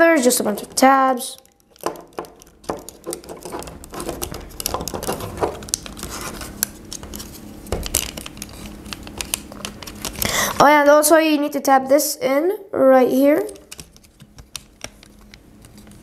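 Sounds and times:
plastic toy parts clicking: 0:01.3 - 0:06.0.

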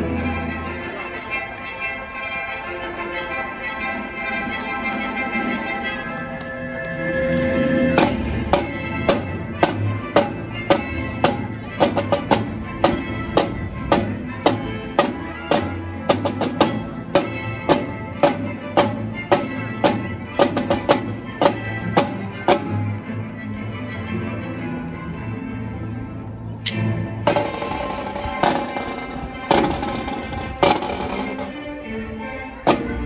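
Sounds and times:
background music: 0:00.0 - 0:33.0
snare drums playing: 0:27.3 - 0:31.5.

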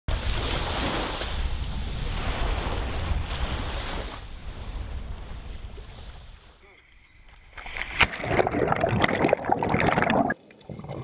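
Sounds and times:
wind rumbling on microphone: 0:00.1 - 0:06.5
small waves washing on beach: 0:00.1 - 0:09.4.

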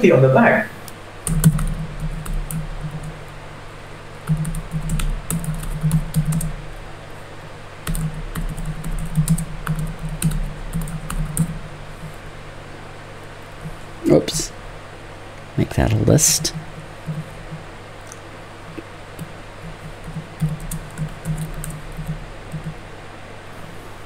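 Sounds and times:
keyboard typing: 0:01.2 - 0:03.4, 0:04.2 - 0:06.7, 0:07.8 - 0:12.2, 0:16.2 - 0:22.8.

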